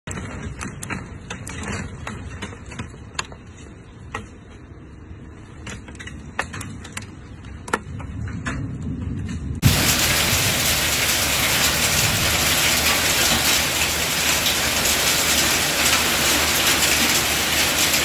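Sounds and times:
low storm rumble: 7.9s - 18.0s
hailstones clicking on surfaces: 9.6s - 18.0s.

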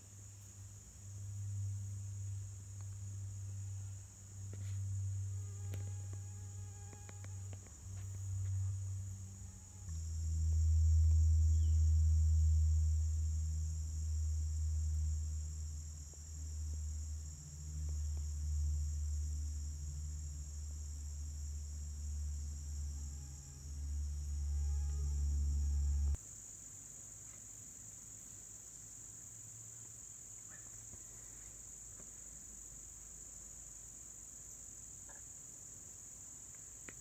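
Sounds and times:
forest insects chorus: 0.0s - 37.0s
low rumble: 0.5s - 26.2s.

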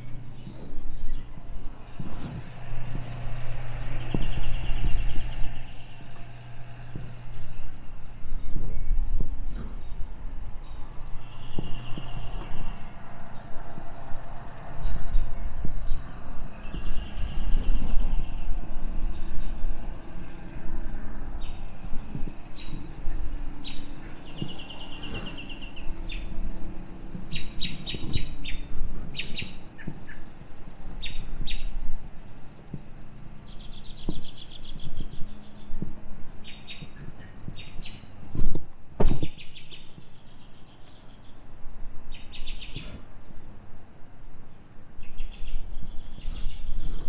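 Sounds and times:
low steady hum: 0.0s - 47.0s
songbirds chirping: 0.0s - 47.0s
loud thumps: 36.8s - 40.1s.

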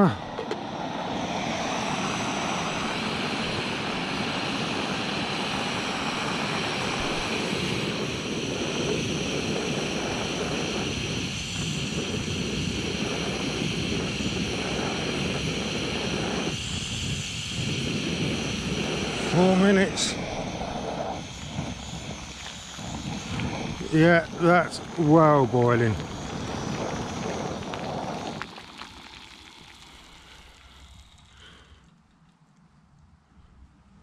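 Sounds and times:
gas burner running: 0.0s - 31.9s
water simmering in a pot: 26.0s - 31.7s.

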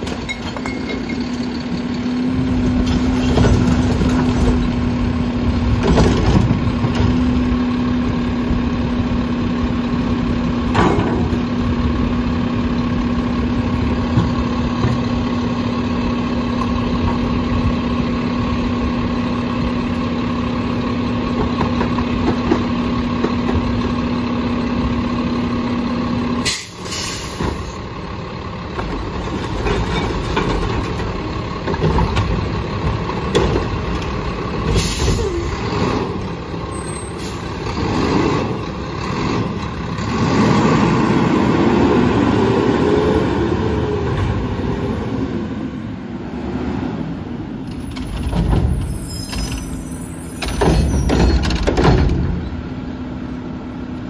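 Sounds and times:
garbage truck engine idling: 6.5s - 35.6s.

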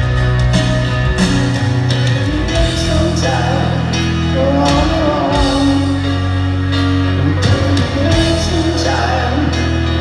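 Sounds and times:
piano chords: 0.0s - 10.0s
rock band playing ballad: 0.0s - 10.0s
person singing with vibrato: 2.1s - 6.4s, 7.1s - 10.0s.

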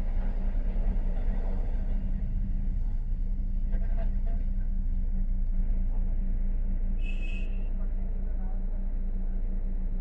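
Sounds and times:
constant low hum: 0.0s - 10.0s.

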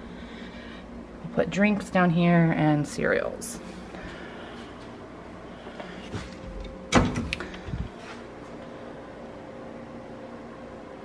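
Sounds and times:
faint steady hum: 0.0s - 11.0s
door and hinge knocks and clicks: 6.9s - 7.7s.

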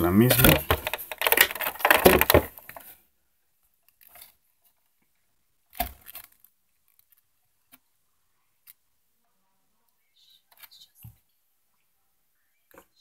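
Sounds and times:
cardboard rustle: 0.2s - 2.8s.

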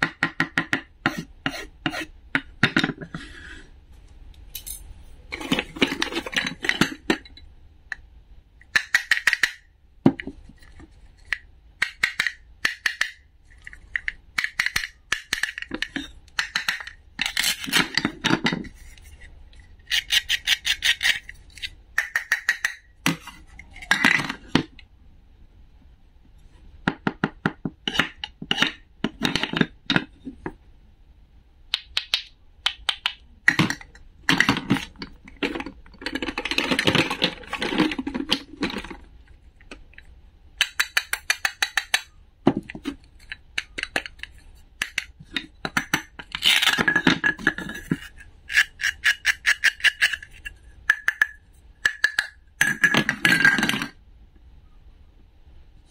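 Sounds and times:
plastic and wooden pieces tapping: 8.7s - 10.4s, 11.2s - 18.7s, 31.7s - 39.1s, 40.6s - 54.0s.

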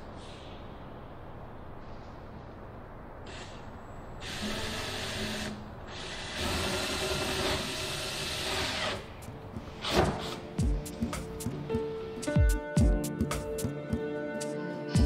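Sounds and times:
cordless drill drilling into wood: 4.2s - 9.1s.

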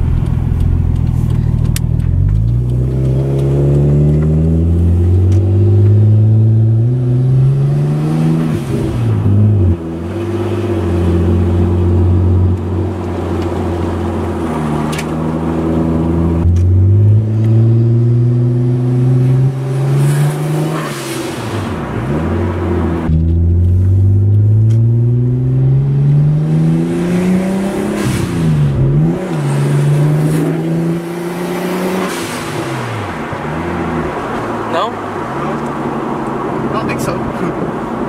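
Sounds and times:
car engine accelerating: 0.0s - 38.0s.

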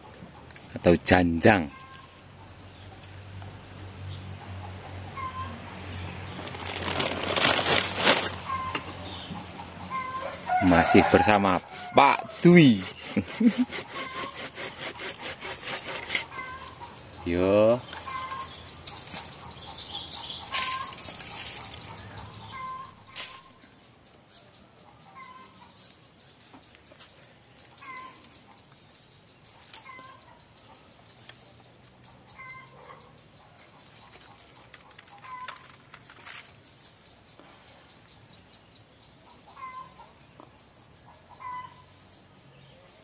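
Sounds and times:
branches rustling: 6.2s - 9.2s, 17.8s - 23.6s
chickens clucking: 8.4s - 23.8s, 24.4s - 28.8s, 29.5s - 36.1s, 39.2s - 42.0s.

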